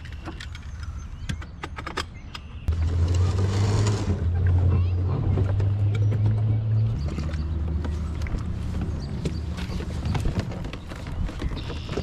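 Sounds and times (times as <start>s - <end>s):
low motor hum: 2.7s - 11.8s
gear knocking and rattling: 2.7s - 12.0s.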